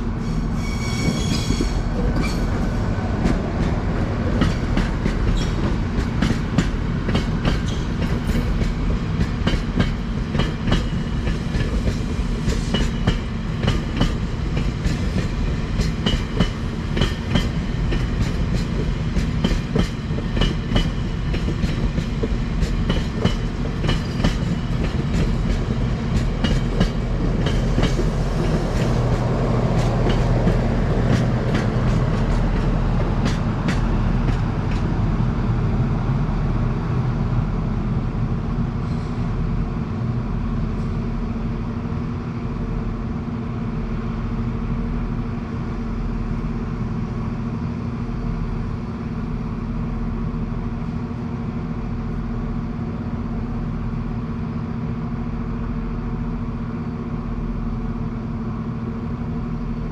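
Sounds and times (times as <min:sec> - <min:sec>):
train wheels clicking over rail joints: 0:00.9 - 0:34.9.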